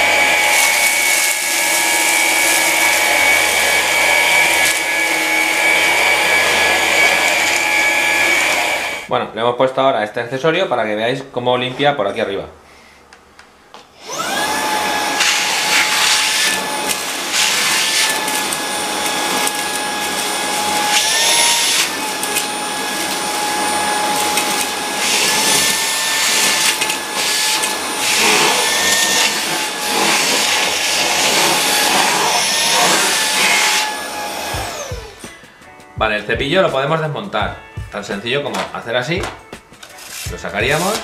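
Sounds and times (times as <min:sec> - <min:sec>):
handheld vacuum whining: 0:00.0 - 0:09.1, 0:14.0 - 0:35.7, 0:39.2 - 0:41.0.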